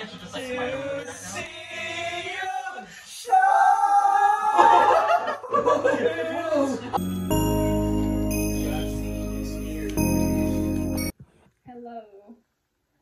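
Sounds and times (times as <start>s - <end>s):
men singing together: 0.3s - 2.9s.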